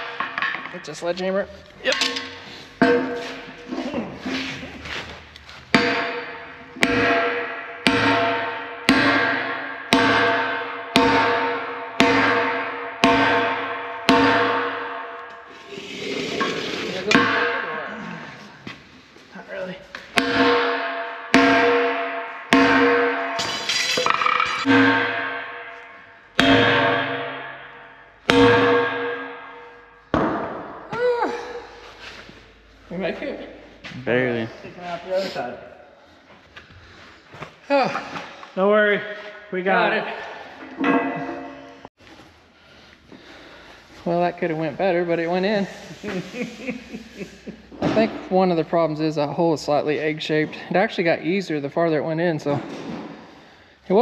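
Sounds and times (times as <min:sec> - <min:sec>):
sledgehammer striking steel: 0:01.9 - 0:04.4, 0:05.7 - 0:15.4, 0:17.0 - 0:18.0, 0:20.1 - 0:31.0, 0:40.7 - 0:41.9.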